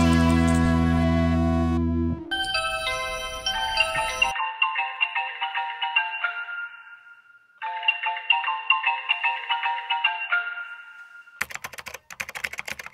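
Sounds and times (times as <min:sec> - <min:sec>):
intercom chime ringtone: 0:02.3 - 0:07.0.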